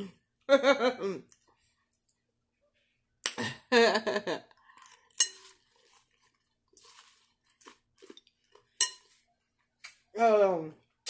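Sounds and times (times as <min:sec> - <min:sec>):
faint crunchy chewing: 0:04.5 - 0:10.1
metal fork clinking against glass bowl: 0:05.2 - 0:05.5, 0:08.8 - 0:09.2.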